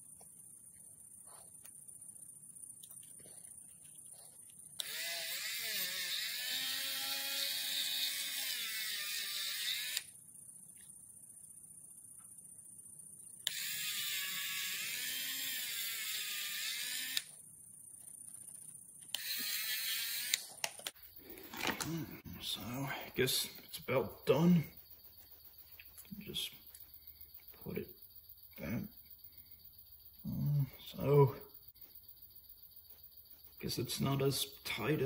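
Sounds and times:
rotary tool whining: 4.8 - 10.2, 13.4 - 17.4, 19.0 - 22.2.

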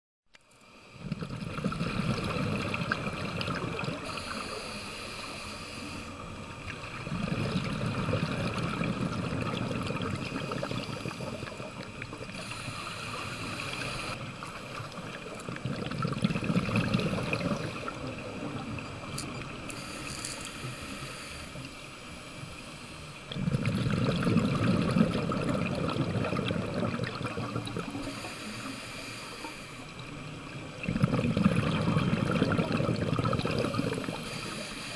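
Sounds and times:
exhaled bubbles underwater: 0.9 - 4.8, 6.1 - 19.9, 23.2 - 28.7, 29.4 - 34.9
regulator hissing inhalations: 4.0 - 6.2, 10.2 - 11.7, 12.3 - 14.2, 19.7 - 21.8, 27.8 - 30.0, 33.6 - 34.9.

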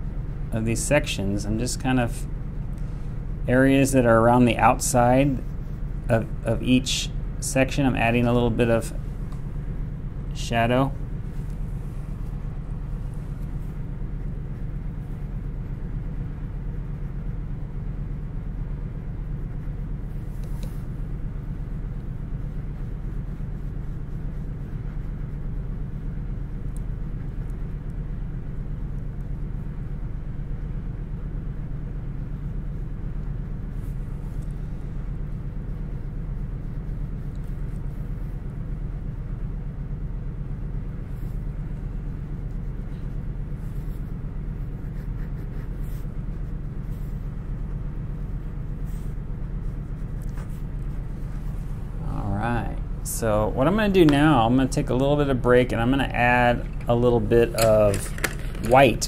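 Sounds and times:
low background hum: 0.0 - 59.0
pen scratching on cardboard: 42.4 - 47.2.

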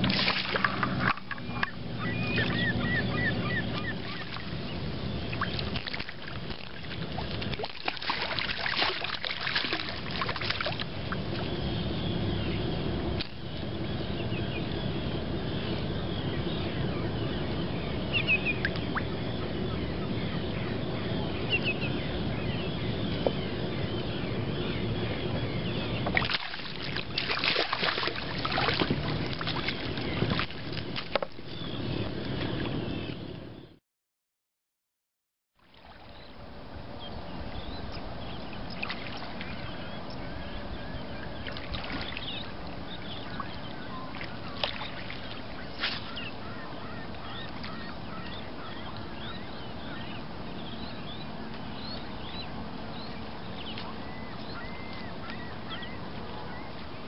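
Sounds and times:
fish thrashing water splashing: 0.0 - 1.4, 5.4 - 10.8, 26.2 - 31.2
bird calls: 0.0 - 33.8, 37.0 - 57.0.

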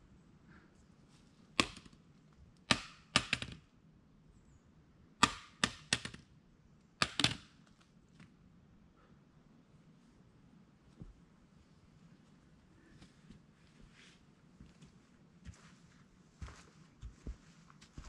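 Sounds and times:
faint steady background: 0.0 - 18.0.

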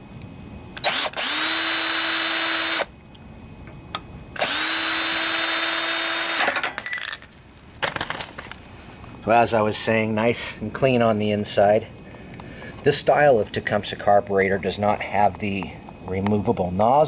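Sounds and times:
cordless drill whining: 0.8 - 2.9, 4.4 - 6.5.

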